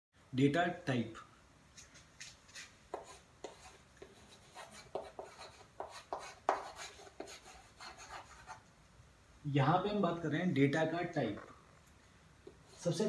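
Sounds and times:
chalk tapping and scraping on chalkboard: 0:01.8 - 0:08.6.

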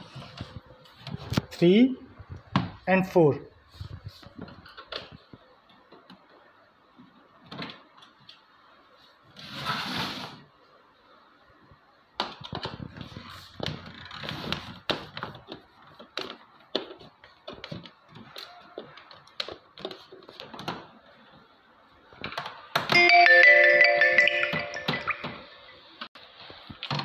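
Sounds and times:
music: 0:23.0 - 0:25.5.

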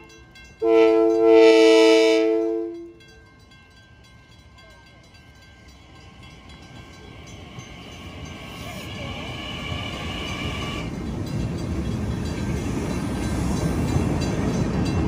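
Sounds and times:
train rumble: 0:00.0 - 0:15.0
train air horn blast: 0:00.6 - 0:02.9.

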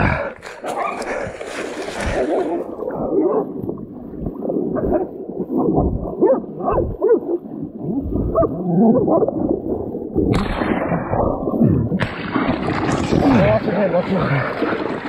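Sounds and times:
hog grunting and squealing: 0:00.0 - 0:01.1
dogs growling: 0:00.0 - 0:03.5.

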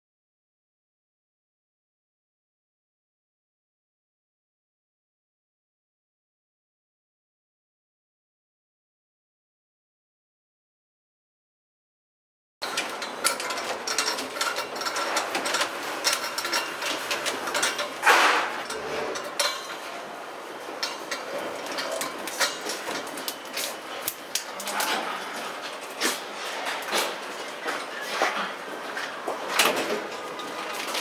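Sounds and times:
metal fittings clicking and clanking: 0:12.6 - 0:20.0, 0:20.6 - 0:24.8.

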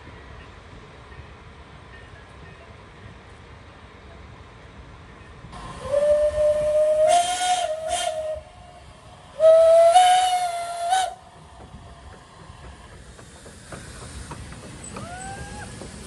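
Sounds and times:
steam locomotive whistle: 0:05.7 - 0:11.2, 0:15.0 - 0:15.7.

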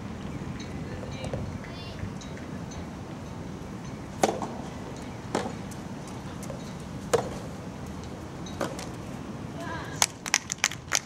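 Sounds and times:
tennis ball struck by rackets: 0:04.2 - 0:04.6, 0:05.3 - 0:05.6, 0:07.1 - 0:07.5.

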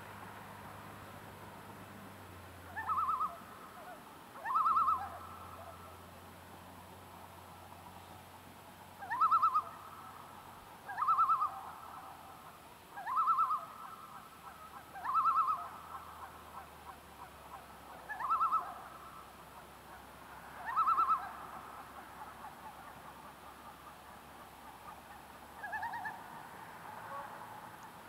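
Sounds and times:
loon tremolo calls: 0:02.7 - 0:05.9, 0:09.0 - 0:10.2, 0:10.8 - 0:12.3, 0:13.0 - 0:19.3, 0:20.6 - 0:26.3.

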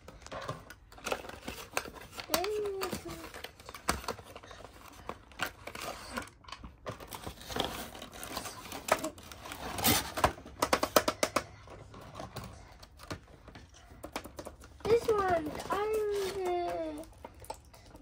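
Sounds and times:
cardboard scraping and rustling: 0:07.0 - 0:10.4.

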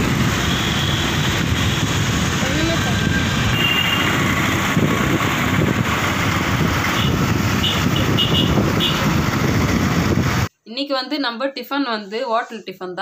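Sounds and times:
road and engine noise: 0:00.0 - 0:10.5.

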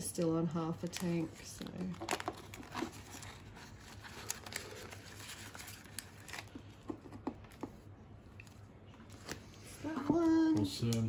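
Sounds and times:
plastic envelope crinkling: 0:00.8 - 0:09.5.

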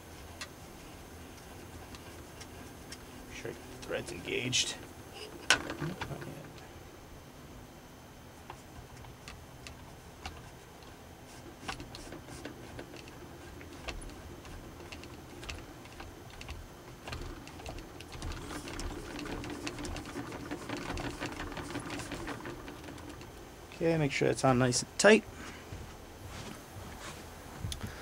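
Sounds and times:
metallic clicks and scrapes: 0:08.5 - 0:23.4.

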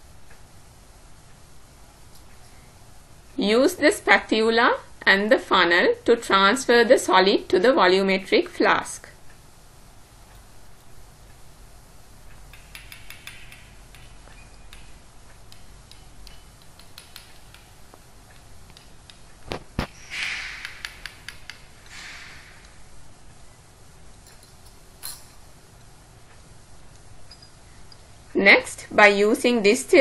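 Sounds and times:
spatula clicking on glass: 0:12.4 - 0:19.2.

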